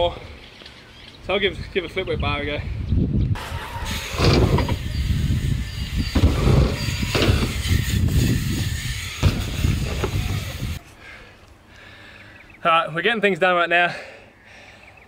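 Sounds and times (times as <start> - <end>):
bike tyres rolling on wooden ramp: 3.4 - 10.8
bike landing knocks on ramp: 6.2 - 7.6, 9.2 - 10.3.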